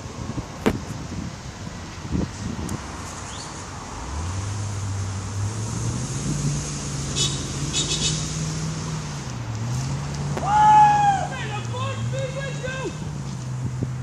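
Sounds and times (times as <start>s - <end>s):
road traffic passing: 0.0s - 14.0s
truck engine accelerating: 3.4s - 14.0s.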